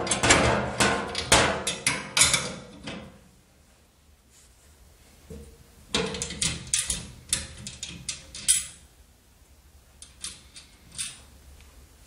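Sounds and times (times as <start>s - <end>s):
metal parts clicking and knocking: 5.9s - 8.8s, 10.0s - 11.3s.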